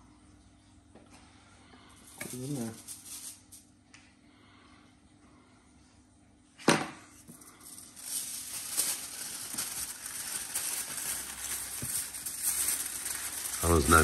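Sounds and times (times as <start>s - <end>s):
aluminium foil crinkling: 2.0s - 3.7s, 7.2s - 14.0s.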